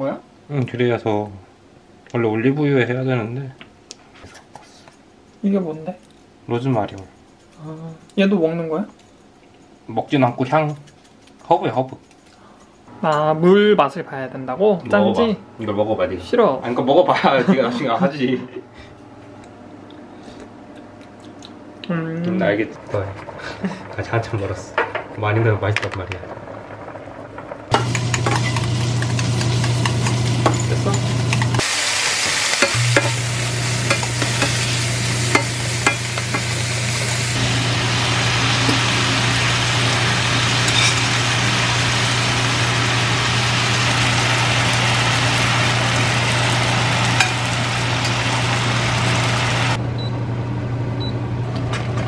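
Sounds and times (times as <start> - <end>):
food sizzling in a frying pan: 22.3 - 49.8.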